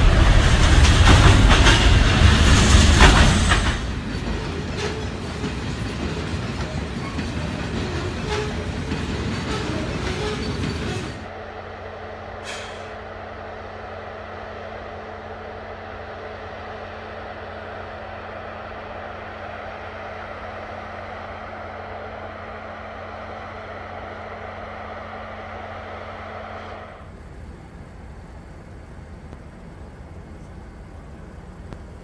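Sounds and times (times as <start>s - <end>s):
freight train rolling past: 0.0s - 32.0s
hiss of air: 12.4s - 13.2s.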